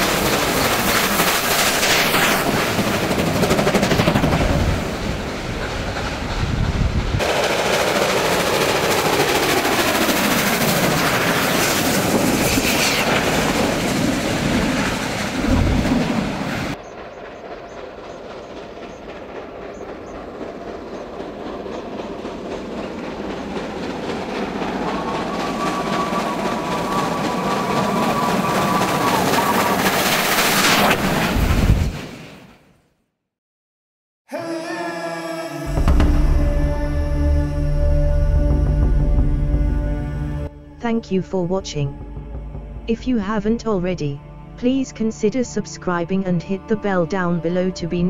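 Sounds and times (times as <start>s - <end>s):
steam locomotive working hard: 0.0s - 15.5s, 16.2s - 30.4s
steam train passing: 0.0s - 30.8s.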